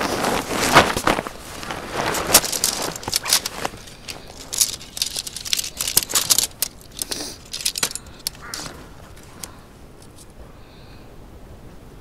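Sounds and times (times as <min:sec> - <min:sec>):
tent pole sections clicking: 0:00.0 - 0:10.3
rustling: 0:00.0 - 0:10.4.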